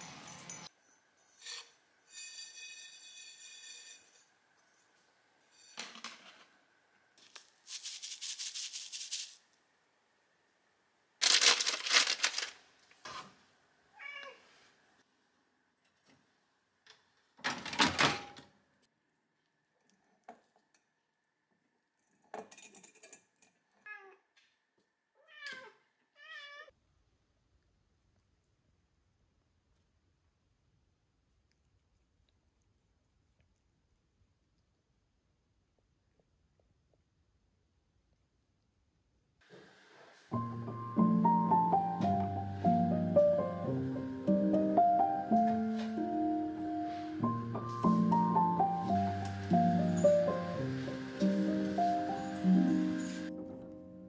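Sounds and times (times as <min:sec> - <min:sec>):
rustling and rubbing: 0:07.2 - 0:09.4
cat meowing: 0:14.0 - 0:14.4, 0:25.2 - 0:26.7.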